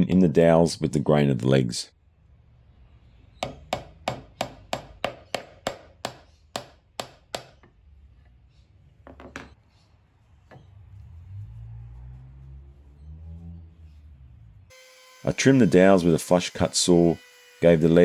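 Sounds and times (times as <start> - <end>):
hammer tapping wooden dowel: 3.4 - 7.8.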